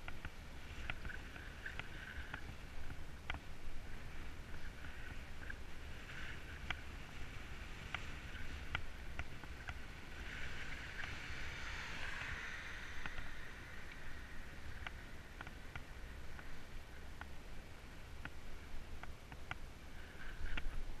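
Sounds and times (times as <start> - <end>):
wind rumbling on microphone: 0.0 - 21.0
bike tyre hiss on asphalt: 9.6 - 16.6.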